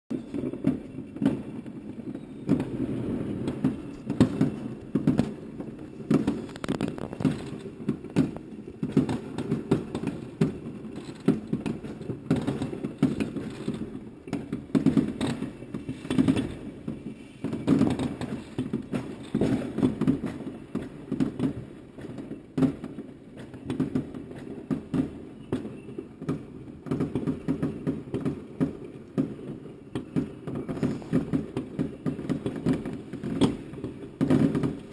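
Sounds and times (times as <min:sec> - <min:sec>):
fireworks bangs and crackles: 0:00.1 - 0:34.9.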